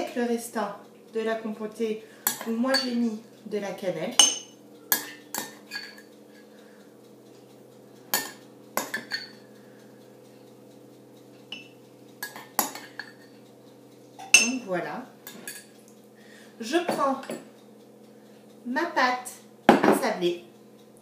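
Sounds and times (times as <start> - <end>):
metal spoon clinking ceramic bowl: 2.2 - 3.0, 4.2 - 6.1, 8.1 - 9.4, 11.5 - 13.3, 14.2 - 14.6.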